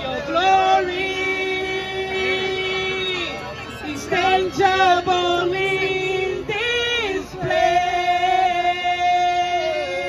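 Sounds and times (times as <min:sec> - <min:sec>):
woman singing into a microphone: 0:00.0 - 0:10.0.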